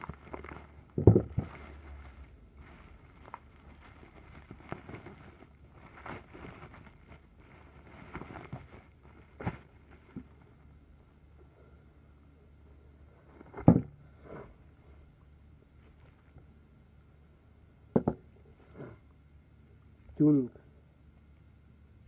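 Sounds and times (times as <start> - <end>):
bubble wrap rustling and crackling: 0.0 - 11.2.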